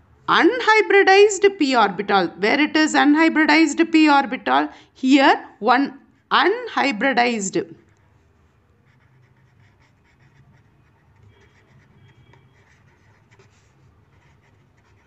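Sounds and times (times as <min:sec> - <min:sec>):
felt-tip pen scratching on paper: 0:07.8 - 0:15.0.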